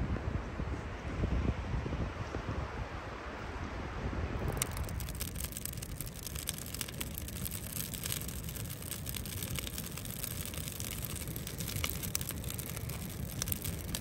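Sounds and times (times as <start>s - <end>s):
low fire rumble: 0.2s - 14.0s
campfire crackling and popping: 4.4s - 14.0s.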